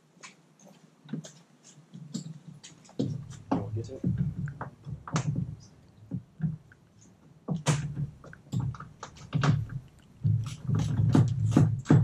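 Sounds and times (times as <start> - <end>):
sharp knocks and low thuds: 2.9 - 6.8, 7.4 - 12.0.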